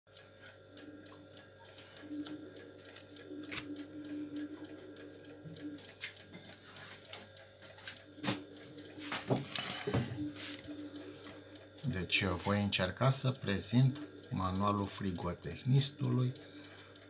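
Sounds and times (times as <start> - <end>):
faint steady hum: 0.1 - 17.0
book handling clicks: 3.5 - 3.7.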